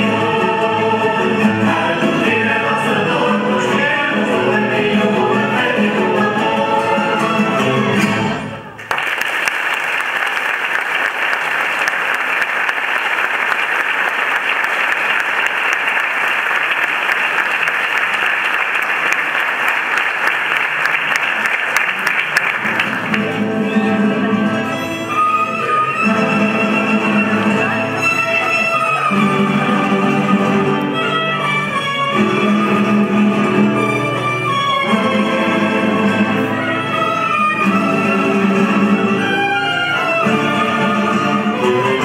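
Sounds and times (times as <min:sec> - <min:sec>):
string band playing: 0:00.0 - 0:08.7, 0:22.0 - 0:42.0
audience applauding: 0:08.0 - 0:24.0.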